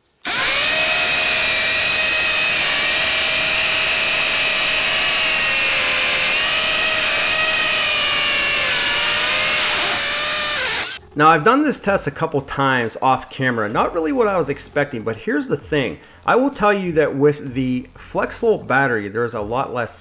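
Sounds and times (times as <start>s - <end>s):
hammer drills drilling into concrete: 0.2s - 11.0s.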